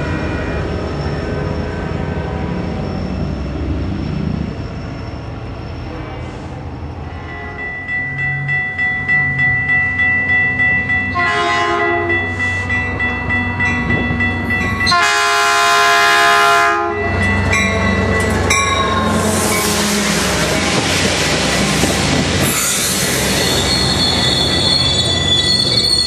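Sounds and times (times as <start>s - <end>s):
freight train passing: 0.0s - 26.0s
rhythmic train clatter: 7.0s - 26.0s
locomotive horn blasts: 11.1s - 12.3s, 14.8s - 17.1s, 18.7s - 20.8s
wheel squeal: 22.5s - 26.0s.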